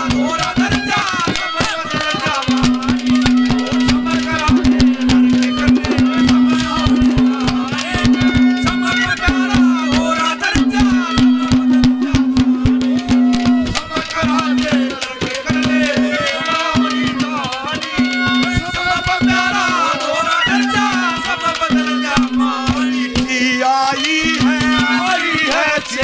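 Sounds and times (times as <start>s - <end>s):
fast drumming: 0.0s - 26.0s
bending melody line: 1.3s - 17.3s.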